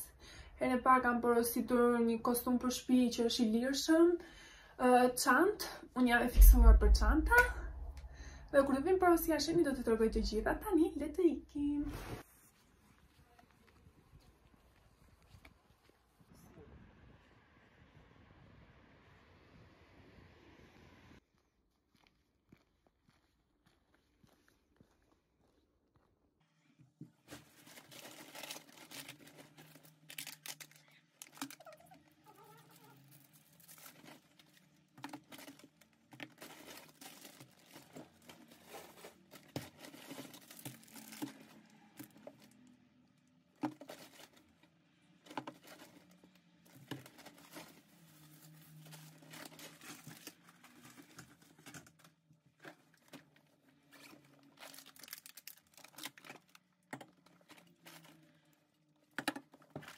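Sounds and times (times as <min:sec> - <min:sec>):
plastic bag rustling and crinkling: 0:27.2 - 0:42.8, 0:43.6 - 0:59.9.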